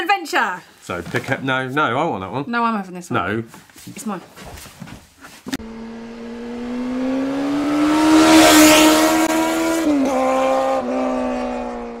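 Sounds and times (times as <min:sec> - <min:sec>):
racing engine revving: 0:05.6 - 0:12.0.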